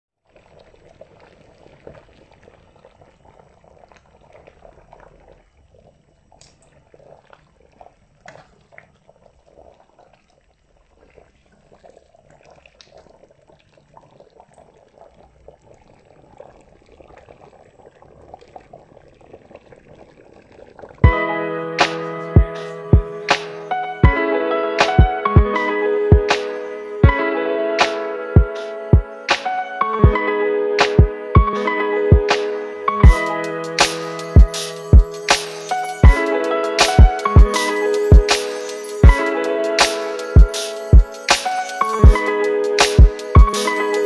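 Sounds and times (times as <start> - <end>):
curry bubbling and popping in a pot: 0.2 - 21.2.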